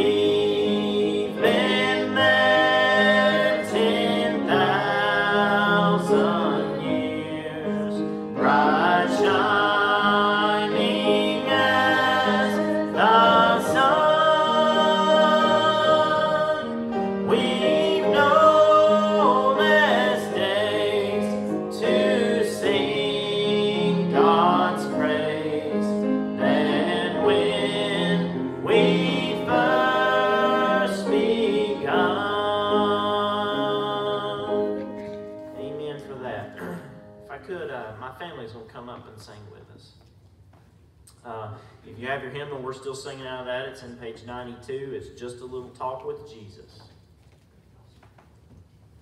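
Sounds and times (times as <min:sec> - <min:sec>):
man singing a hymn: 0:00.0 - 0:36.6
instrumental accompaniment: 0:00.0 - 0:37.6.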